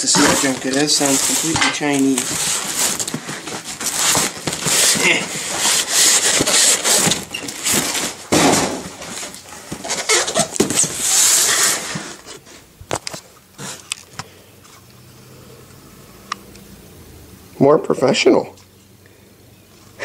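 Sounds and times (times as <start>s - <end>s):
cardboard box scraping: 0.0s - 12.6s.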